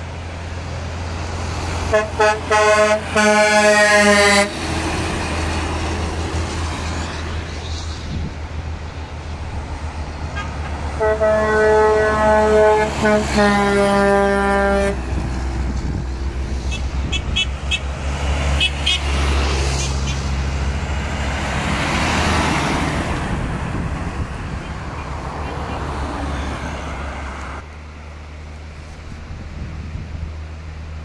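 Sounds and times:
low drone of diesel engines: 0.0 - 31.0
truck passing close by: 0.0 - 31.0
truck horn tooting: 1.9 - 4.6, 10.3 - 15.2, 16.7 - 20.2.

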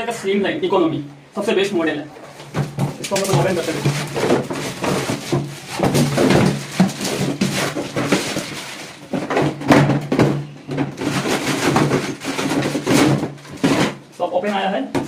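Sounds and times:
plastic wrap crinkling: 2.2 - 9.6.

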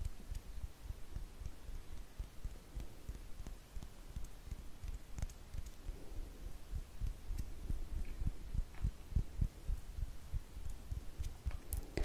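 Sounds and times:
hands rubbing on microphone: 1.1 - 5.9.

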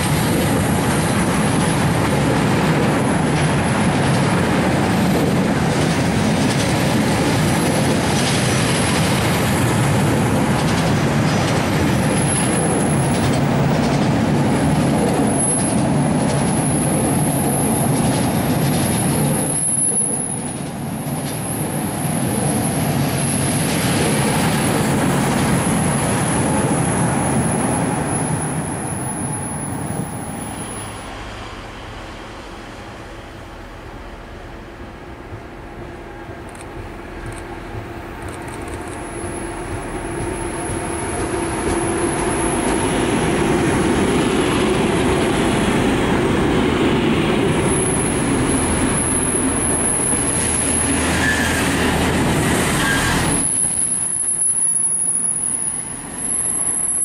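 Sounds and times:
freight train rumbling past: 0.0 - 57.0
high wheel squeal: 47.6 - 57.0.

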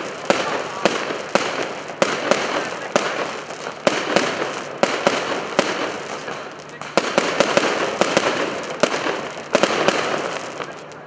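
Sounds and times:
fireworks bangs: 0.0 - 11.0
fireworks crackling hiss: 0.0 - 11.0.

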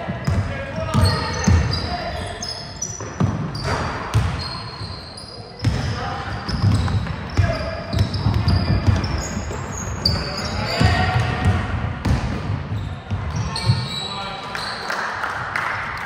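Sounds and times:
shoes squeaking on court: 0.0 - 11.4, 12.4 - 14.8
players' voices: 0.0 - 15.2
basketball bouncing on floor: 3.0 - 4.4, 6.5 - 9.2.

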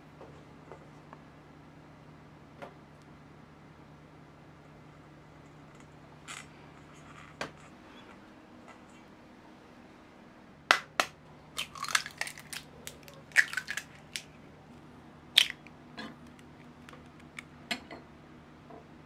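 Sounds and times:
eggshells crackling: 11.6 - 14.3, 15.4 - 15.7.

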